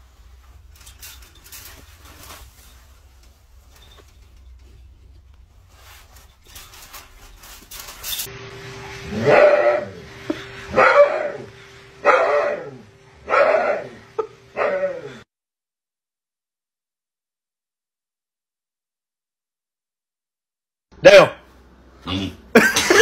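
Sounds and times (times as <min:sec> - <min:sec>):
steady hum: 0:00.0 - 0:15.2
dog crying: 0:10.7 - 0:15.2.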